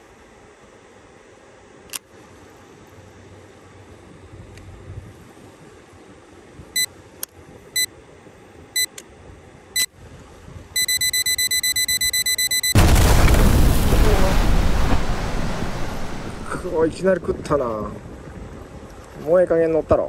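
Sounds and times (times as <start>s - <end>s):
electronic beeps: 10.8s - 12.8s
loud rushing noise: 12.8s - 17.0s.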